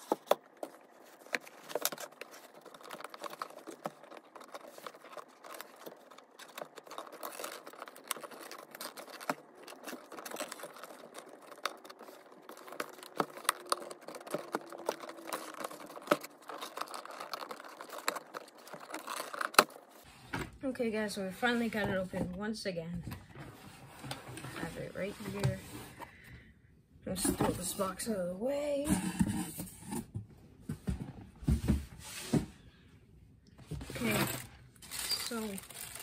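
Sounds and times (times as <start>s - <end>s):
cardboard rustling and scraping: 0.0s - 20.5s, 23.3s - 26.1s, 28.8s - 32.7s.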